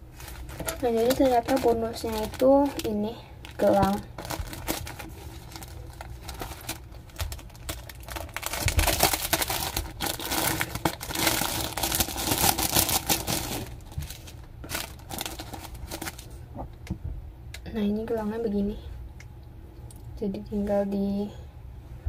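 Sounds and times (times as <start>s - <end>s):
plastic packet crinkling: 0.0s - 16.4s.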